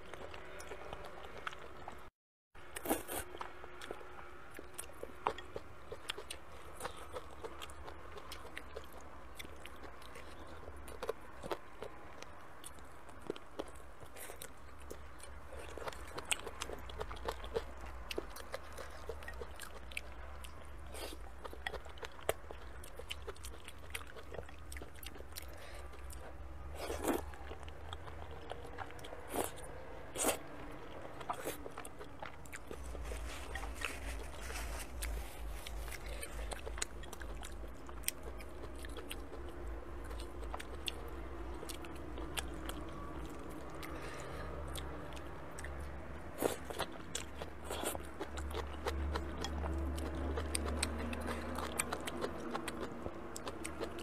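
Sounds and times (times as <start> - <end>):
chewing noodles: 2.7 - 54.0.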